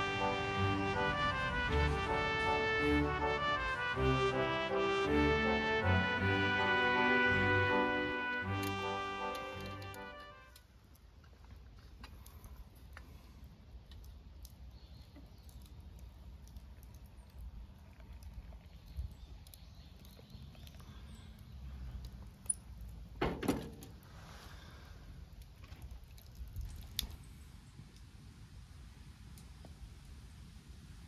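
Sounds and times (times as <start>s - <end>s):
low steady rumble: 0.0s - 8.6s
faint small clicks: 9.7s - 23.0s, 25.4s - 27.2s.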